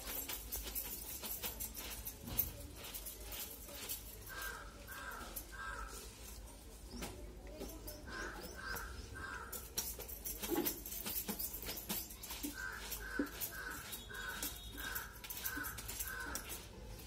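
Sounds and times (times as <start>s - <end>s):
hand eating rice from steel bowls: 0.0s - 17.0s
crow cawing: 4.3s - 6.0s, 8.1s - 9.6s, 12.5s - 16.6s.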